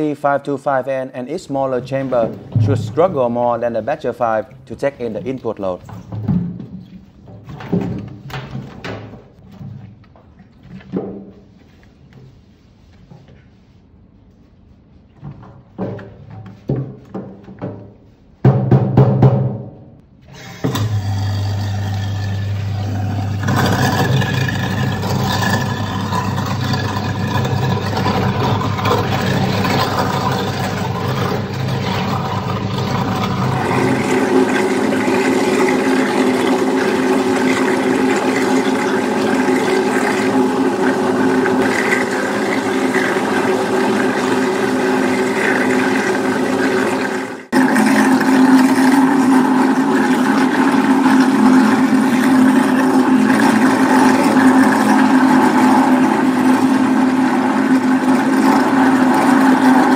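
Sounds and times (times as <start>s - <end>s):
garbage disposal grinding: 1.3s - 11.0s, 20.2s - 59.9s
tap water running into sink: 20.6s - 59.9s.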